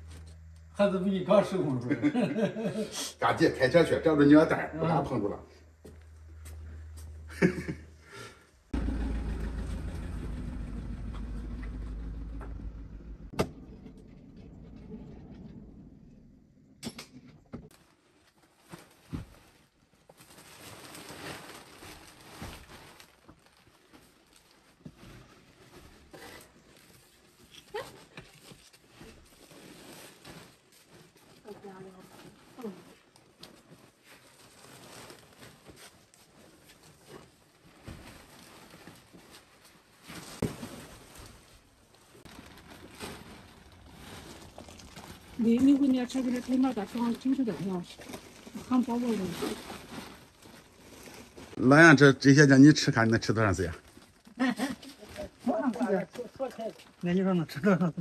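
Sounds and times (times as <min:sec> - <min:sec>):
plastic sacks rustling: 0:17.7 - 0:57.6.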